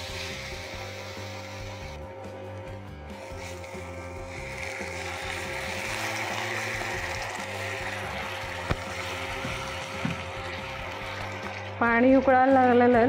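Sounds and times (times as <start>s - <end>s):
water sizzling in hot pan: 0.0s - 2.0s, 3.2s - 11.8s.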